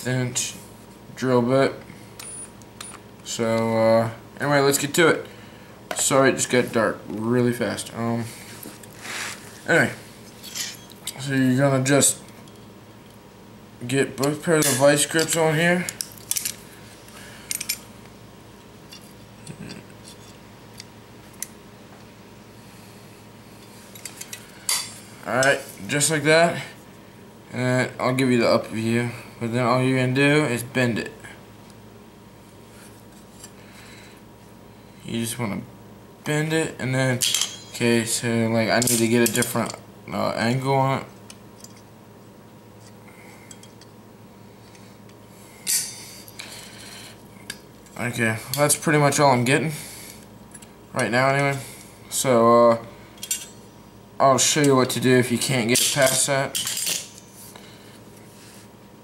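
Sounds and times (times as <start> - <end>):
metal pliers clanking: 37.2 - 37.8.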